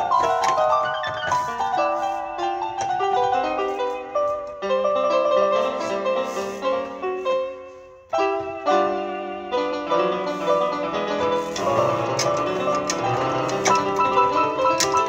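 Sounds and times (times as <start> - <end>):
solo piano playing a hymn: 0.0 - 15.0.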